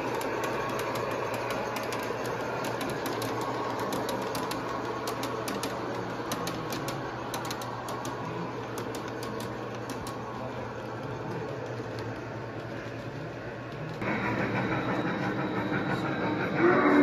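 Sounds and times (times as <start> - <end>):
model train wheels clicking: 0.0 - 17.0
low hum: 10.1 - 17.0.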